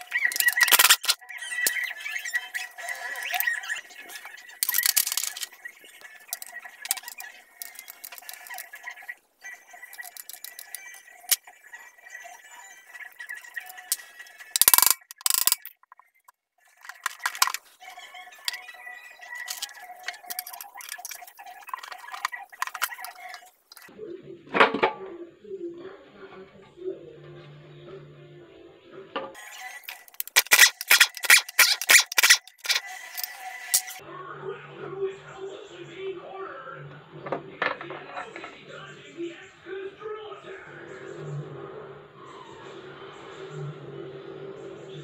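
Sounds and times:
metallic clicks of hand tools: 4.6s - 5.5s, 14.6s - 15.8s, 29.9s - 34.0s.

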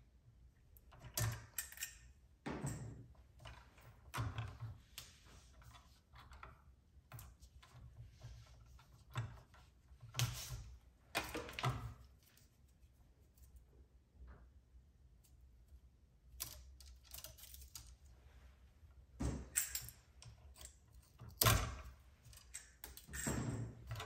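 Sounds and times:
electrical cable clicks and rustling: 16.4s - 18.1s.

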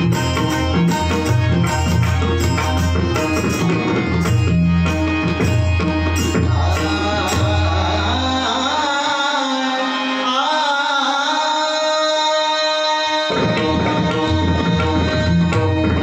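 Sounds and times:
wavering melody: 0.0s - 11.0s
tabla playing: 0.0s - 16.0s.

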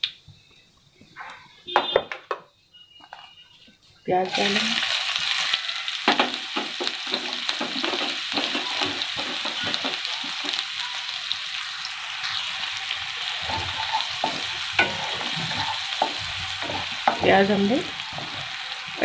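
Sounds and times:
onion sizzling in hot oil: 4.0s - 19.0s
spatula scraping a pan: 6.8s - 10.6s, 13.3s - 18.7s.

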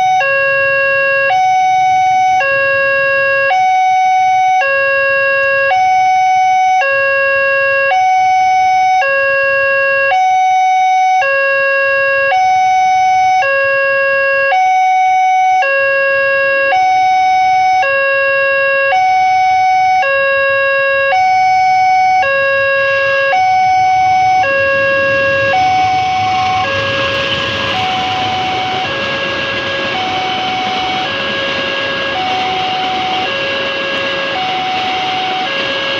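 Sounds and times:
level crossing two-tone alarm: 0.0s - 35.9s
approaching train rushing: 22.2s - 35.9s.

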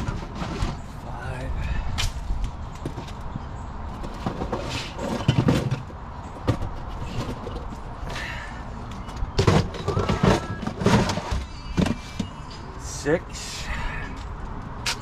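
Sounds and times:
plastic bins clattering on metal: 4.0s - 7.8s, 9.1s - 12.4s.

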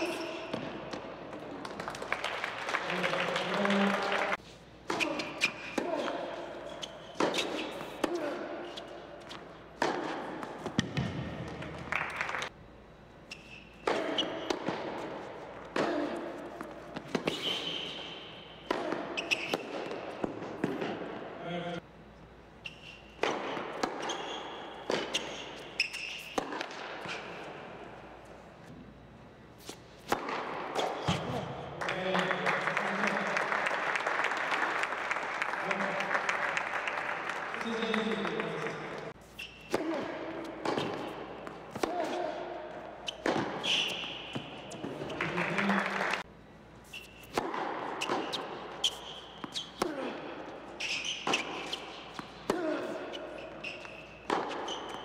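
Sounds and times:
sneaker squeaks: 0.0s - 1.1s, 4.9s - 11.1s, 13.2s - 21.7s, 22.6s - 27.8s, 28.9s - 31.5s, 37.6s - 45.7s, 46.8s - 55.0s
tennis ball bouncing on hard court: 6.8s - 12.1s, 13.8s - 17.8s, 18.6s - 21.1s, 23.2s - 27.6s, 29.6s - 31.6s, 39.0s - 45.4s, 47.2s - 50.0s, 50.8s - 55.0s.

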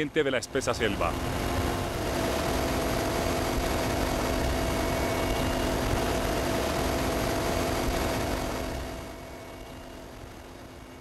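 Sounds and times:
constant whining tones: 0.0s - 11.0s
helicopter rotor and turbine drone: 0.0s - 11.0s.

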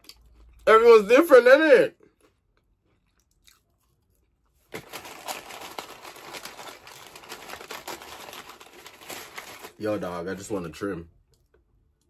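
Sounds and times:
paper wrapping crinkling: 4.6s - 10.1s.

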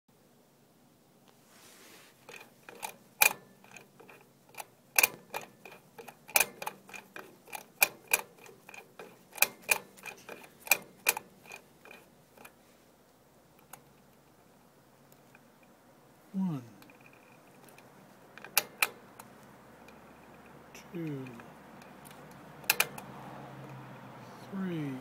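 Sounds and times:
safe combination dial clicking: 2.3s - 12.6s, 16.6s - 23.8s.

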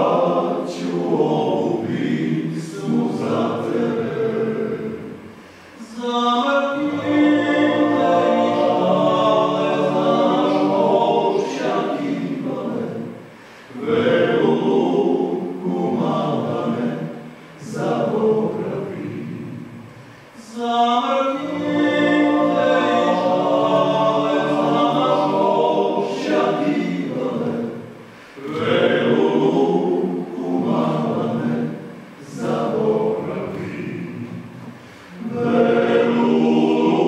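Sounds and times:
male group singing a cappella: 0.0s - 37.0s.

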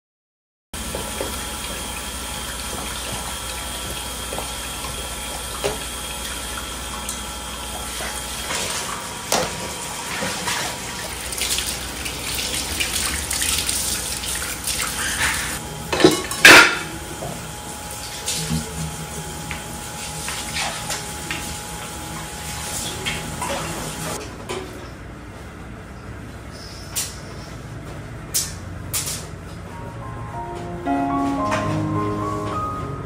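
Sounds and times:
tap water running into sink: 0.8s - 16.2s.

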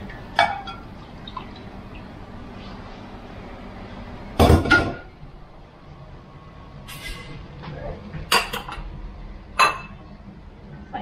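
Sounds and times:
cookware clattering: 8.3s - 8.9s.

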